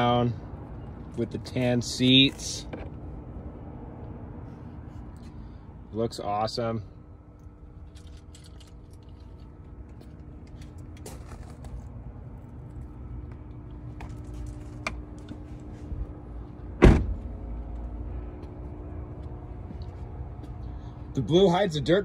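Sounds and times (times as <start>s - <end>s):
faint steady hum: 0.0s - 22.0s
car door shutting with heavy thud: 16.8s - 17.3s.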